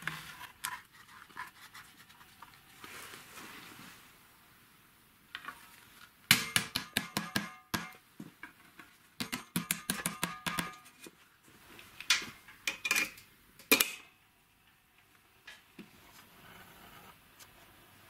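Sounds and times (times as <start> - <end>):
hammer striking steel tube: 6.3 - 8.0, 9.2 - 10.8.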